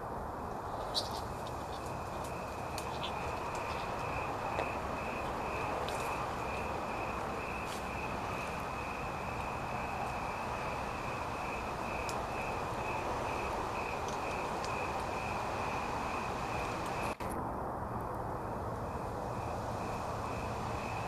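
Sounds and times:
steady background noise: 0:00.0 - 0:21.0
cricket chirping: 0:00.5 - 0:17.2, 0:18.4 - 0:21.0.

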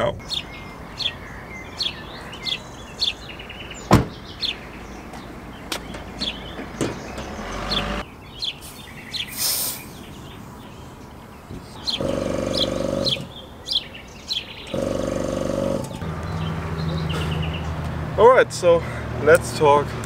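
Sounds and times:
birds chirping: 0:00.0 - 0:20.0
air pump buzzing: 0:11.9 - 0:13.3, 0:14.7 - 0:16.3.

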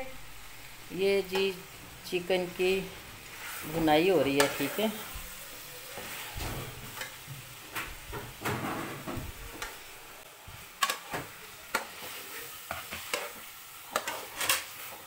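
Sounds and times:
chicken sizzling in a pot: 0:00.0 - 0:15.0
metal spatula scraping pot: 0:03.3 - 0:05.2, 0:05.8 - 0:07.2, 0:10.8 - 0:15.0.

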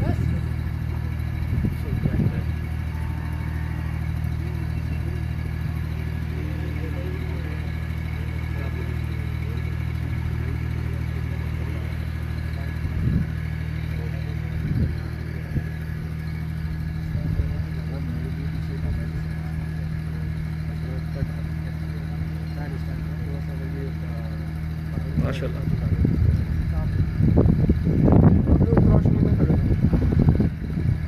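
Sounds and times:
low engine hum: 0:00.0 - 0:31.0.

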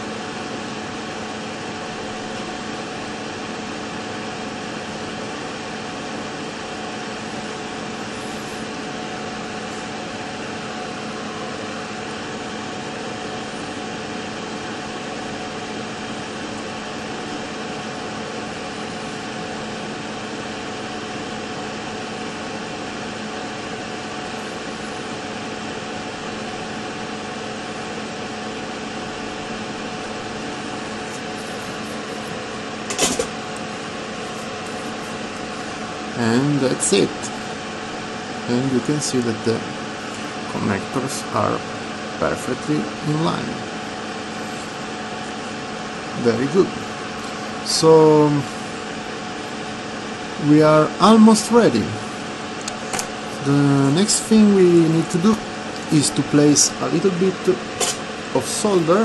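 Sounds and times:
steady machine hum: 0:00.0 - 0:59.0
sharp click: 0:57.8 - 0:58.0.

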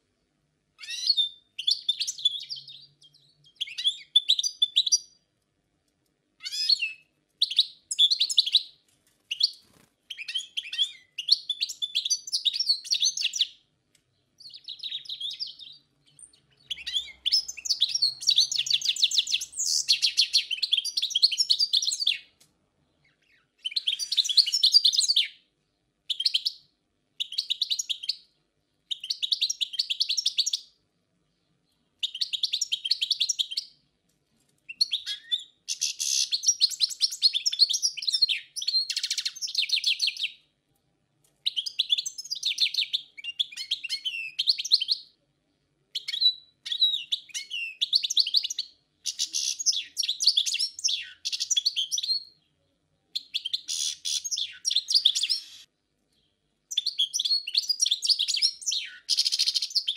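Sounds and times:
goldfinch twittering song: 0:14.4 - 0:22.2, 0:53.2 - 0:55.7.

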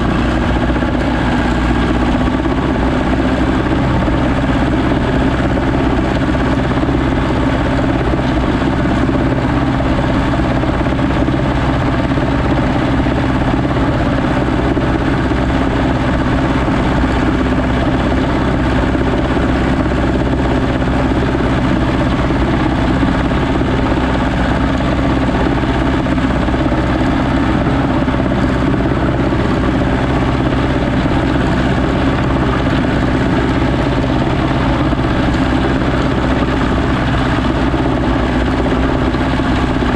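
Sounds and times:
tractor diesel engine droning: 0:00.0 - 0:39.9.

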